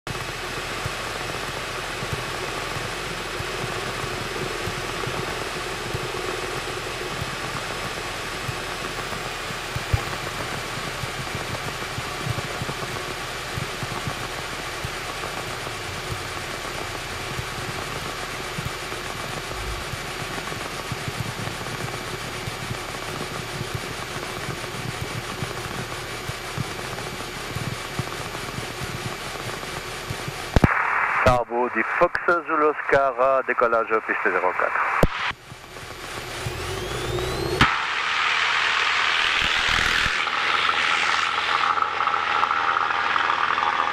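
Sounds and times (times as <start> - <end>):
propeller engine idling: 0.1 - 30.6, 35.4 - 37.6, 38.3 - 43.9.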